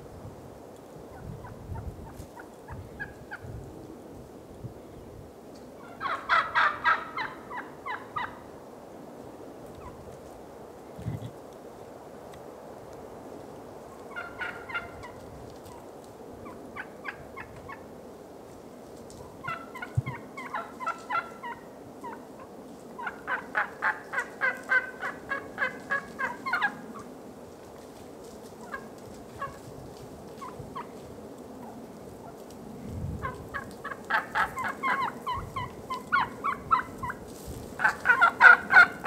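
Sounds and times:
turkeys calling: 5.8 - 8.4, 14.0 - 15.8, 19.4 - 27.1, 28.6 - 29.7, 33.2 - 37.2, 37.8 - 39.0.

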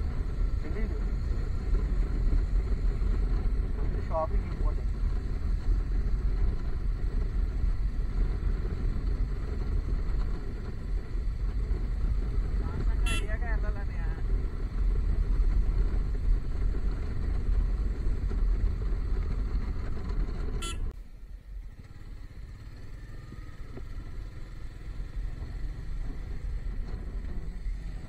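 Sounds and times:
motorcycle engine rumble: 0.0 - 28.0
horn beeping: 13.0 - 13.5, 20.6 - 20.9.

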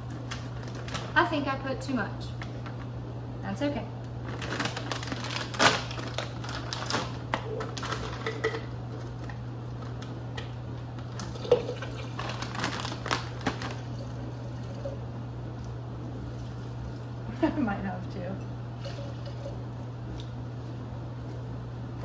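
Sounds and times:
steady low hum: 0.0 - 22.0
frozen fruit rattling in plastic bag: 0.2 - 1.6, 4.2 - 9.9, 11.1 - 14.2.

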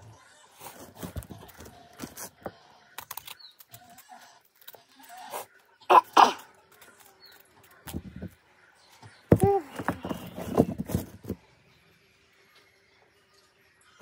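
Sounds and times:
rustling and crinkling of newspaper: 9.4 - 11.4.

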